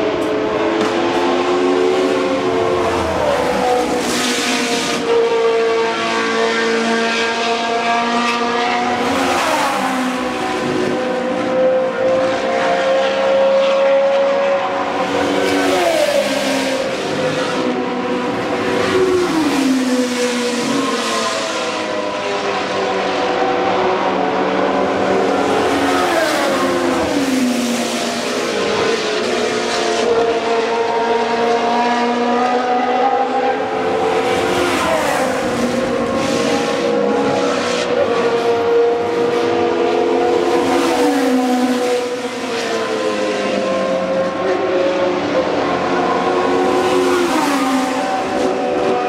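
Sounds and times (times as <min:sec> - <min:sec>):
racing car engines passing at speed: 0:00.0 - 0:49.0.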